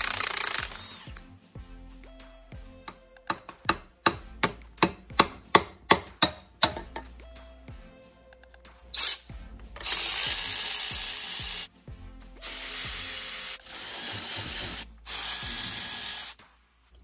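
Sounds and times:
cordless electric ratchet bursts: 0:00.0 - 0:01.2, 0:09.8 - 0:11.7, 0:12.4 - 0:16.4.

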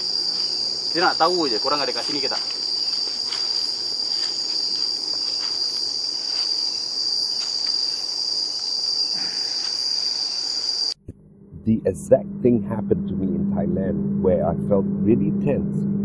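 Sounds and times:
night insects shrilling: 0:00.0 - 0:11.0.

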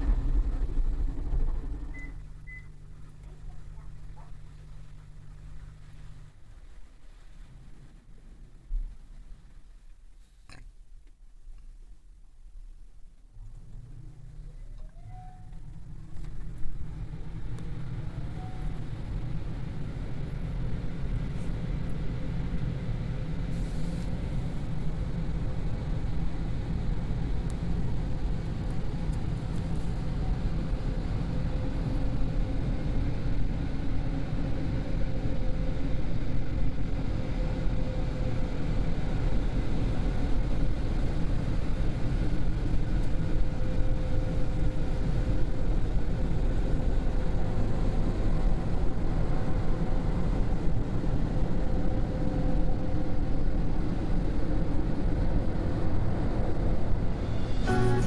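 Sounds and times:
low rumble inside car: 0:00.0 - 0:58.0
faint hum: 0:55.4 - 0:58.0.

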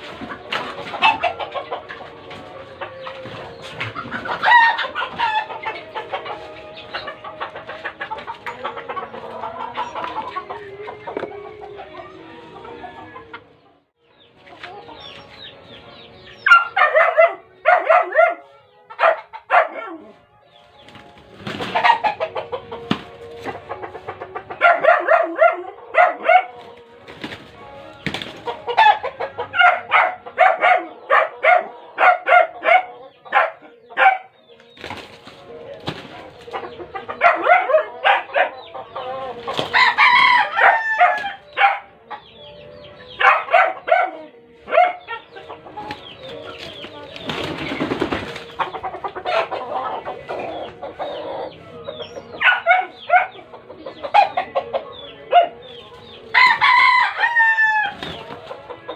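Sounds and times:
chickens clucking: 0:00.0 - 0:58.9
wings flapping: 0:34.8 - 0:36.2, 0:46.6 - 0:48.5
rooster crowing: 0:39.7 - 0:41.4, 0:56.4 - 0:58.0.

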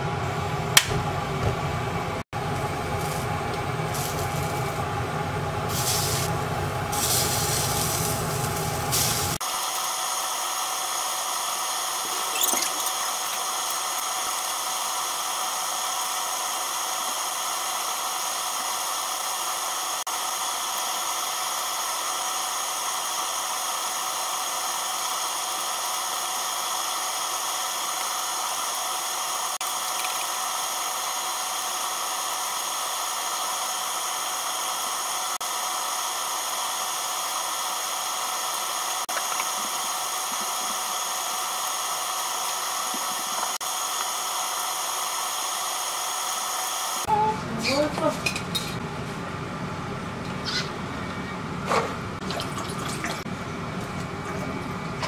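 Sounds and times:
gas burner hissing: 0:02.4 - 0:47.1
meat sizzling on a grill: 0:02.9 - 0:04.8, 0:05.6 - 0:10.3.

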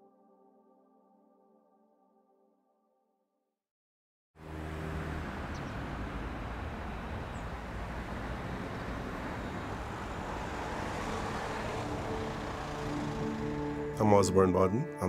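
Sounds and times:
traffic rumble: 0:04.4 - 0:14.0.

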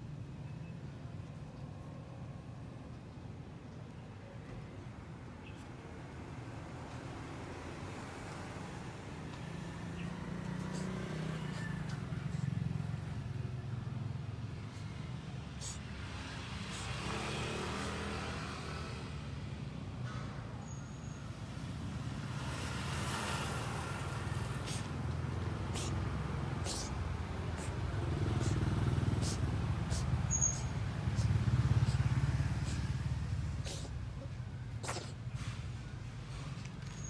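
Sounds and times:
road traffic rumbling: 0:00.0 - 0:37.0
vehicles passing by: 0:00.0 - 0:37.0.

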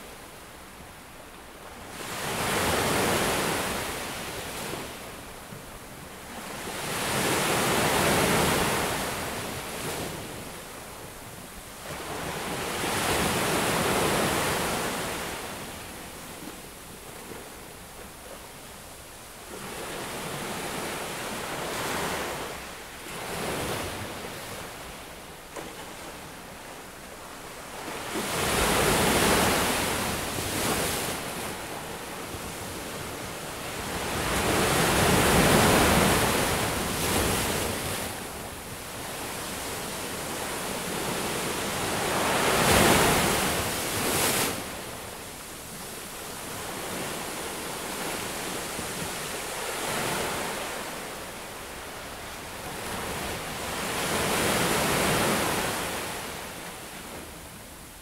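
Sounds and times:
ocean waves breaking on beach: 0:19.4 - 0:58.0.

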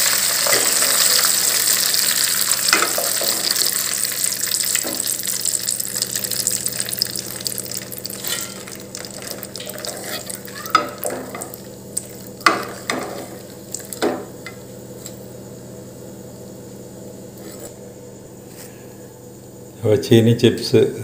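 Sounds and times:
chips sizzling in hot oil: 0:00.0 - 0:14.6
metal skimmer scraping and clinking: 0:08.1 - 0:11.5.

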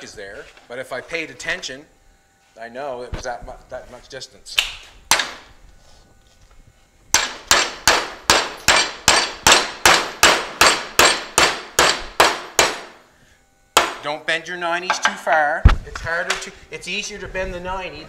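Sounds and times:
hammer striking metal bracket: 0:07.2 - 0:12.9, 0:13.8 - 0:14.0.

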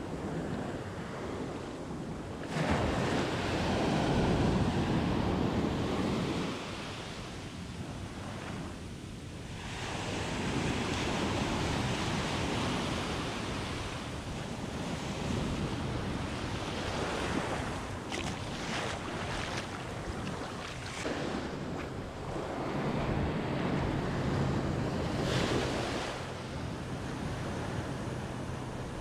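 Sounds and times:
small waves breaking: 0:09.8 - 0:29.0.

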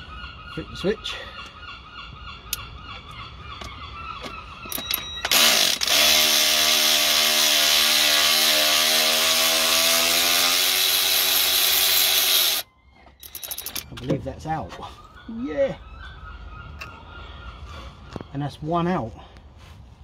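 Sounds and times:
electric ratchet motor whining: 0:04.9 - 0:13.8.

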